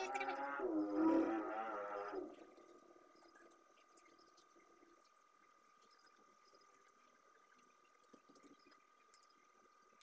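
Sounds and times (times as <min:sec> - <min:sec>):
thin steady whine: 0:00.0 - 0:10.0
faint ticks: 0:02.3 - 0:10.0.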